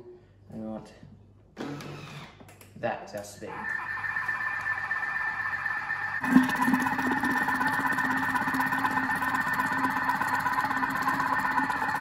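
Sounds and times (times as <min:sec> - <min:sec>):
mixer blade whine: 0:03.4 - 0:12.0
low hum: 0:03.5 - 0:12.0.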